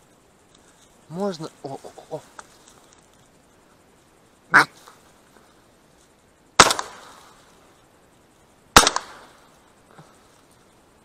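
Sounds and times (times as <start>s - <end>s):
shotgun shots: 6.6s - 7.4s, 8.7s - 9.4s.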